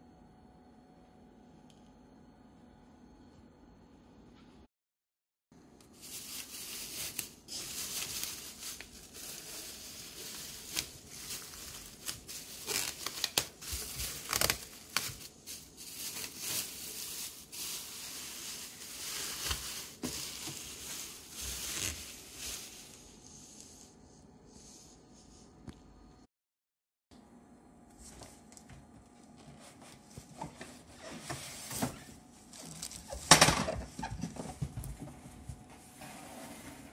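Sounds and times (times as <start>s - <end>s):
plastic bag crinkling: 5.8s - 23.2s, 32.4s - 33.3s.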